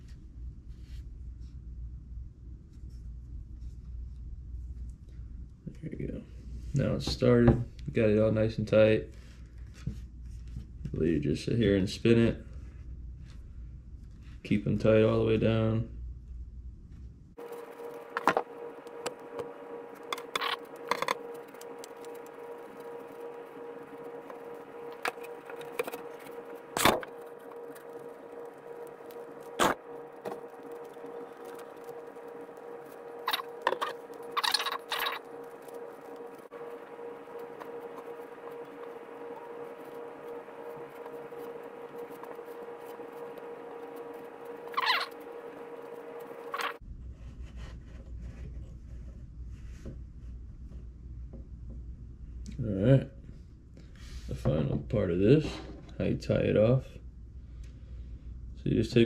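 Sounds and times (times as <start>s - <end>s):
steady hum: 0.0s - 59.0s
twine winding rustle: 17.4s - 46.8s.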